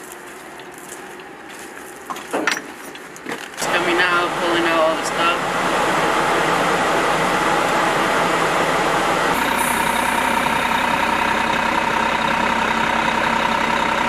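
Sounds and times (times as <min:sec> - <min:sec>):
vehicles driving on dirt road: 0:00.0 - 0:14.0
steady engine drone: 0:03.2 - 0:14.0.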